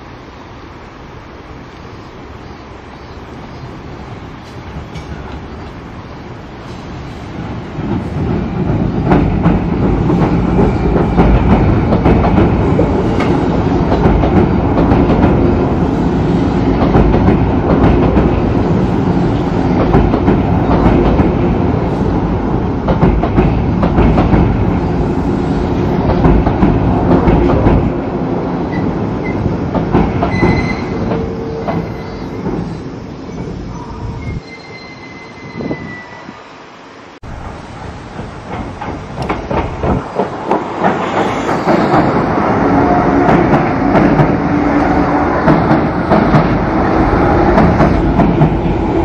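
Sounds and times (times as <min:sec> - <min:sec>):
electric train running past: 0:00.0 - 0:49.0
high wheel squeals: 0:30.3 - 0:32.6, 0:33.2 - 0:36.6
wheels clattering over rail joints: 0:37.3 - 0:44.4.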